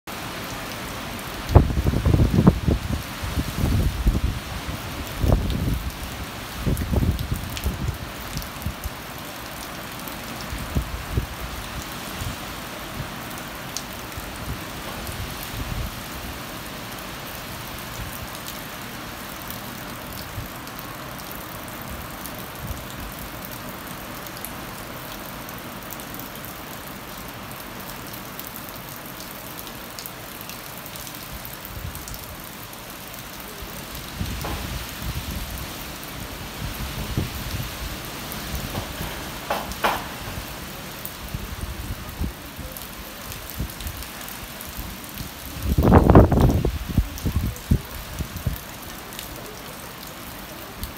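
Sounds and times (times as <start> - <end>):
heavy rain hissing: 0.1 - 50.9
low rumbling wind gusts: 1.4 - 8.9, 34.0 - 42.5, 44.8 - 48.6.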